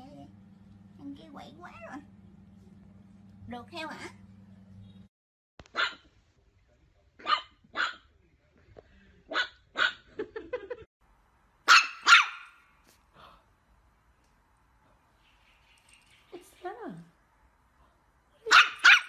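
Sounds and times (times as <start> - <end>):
small dog barking: 5.7 - 6.1, 7.2 - 8.1, 9.3 - 10.1, 11.7 - 12.6, 18.4 - 19.0.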